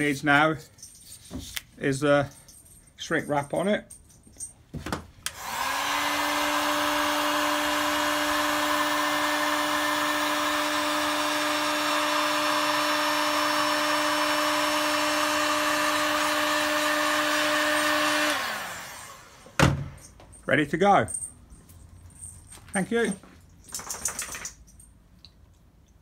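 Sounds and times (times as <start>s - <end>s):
heat gun fan running: 5.2s - 19.8s.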